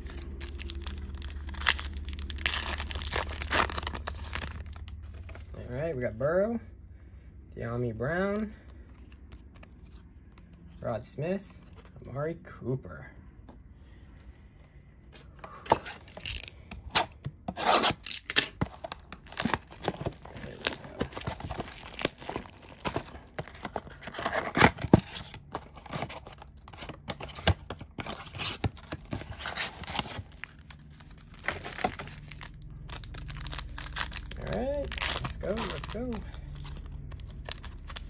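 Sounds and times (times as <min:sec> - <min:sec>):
foil wrappers crinkling and tearing: 0:00.0 - 0:05.7, 0:16.1 - 0:16.6, 0:17.9 - 0:38.0.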